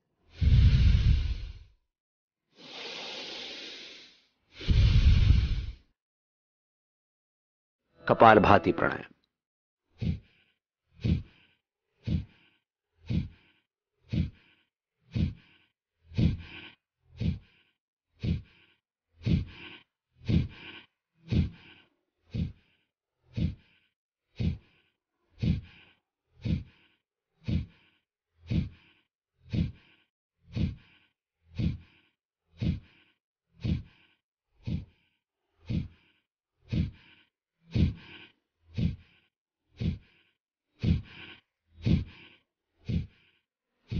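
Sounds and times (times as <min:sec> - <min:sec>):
forceful exhalations through nose: 0:00.3 - 0:01.8, 0:02.5 - 0:05.9.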